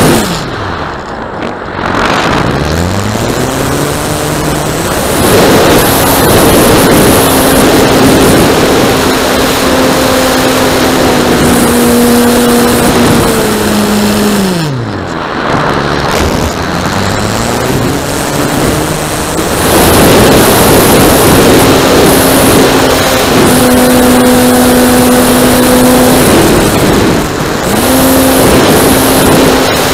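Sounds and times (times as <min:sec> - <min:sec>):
model airplane motor and propeller: 0:00.0 - 0:29.9
wind rush on microphone: 0:00.0 - 0:29.9.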